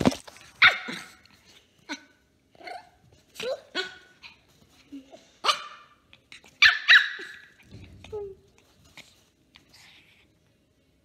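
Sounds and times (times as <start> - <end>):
puppy barking high-pitched: 0.6 - 1.2, 5.4 - 6.0, 6.6 - 7.6.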